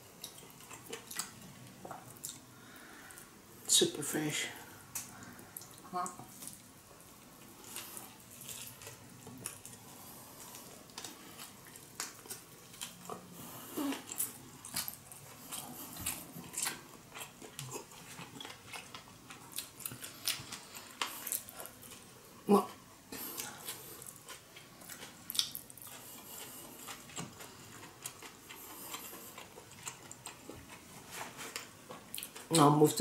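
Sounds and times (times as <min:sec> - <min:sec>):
chewing with wet mouth clicks: 0:00.2 - 0:02.5, 0:10.4 - 0:22.0, 0:23.2 - 0:30.9, 0:31.5 - 0:32.7.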